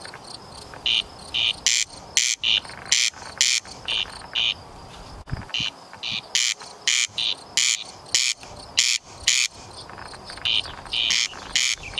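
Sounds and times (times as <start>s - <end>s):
bird rasping call: 5.5s - 11.9s.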